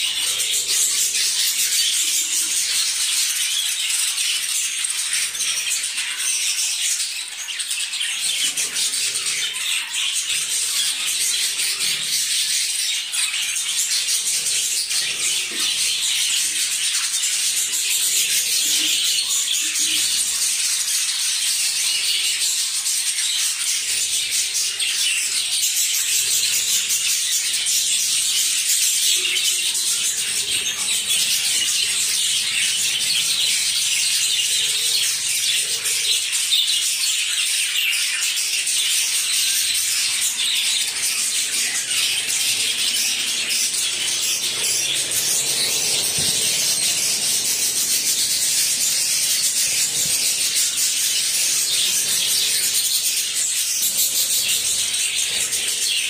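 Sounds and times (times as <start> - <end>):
budgerigars chattering and chirping: 0.0 - 56.0.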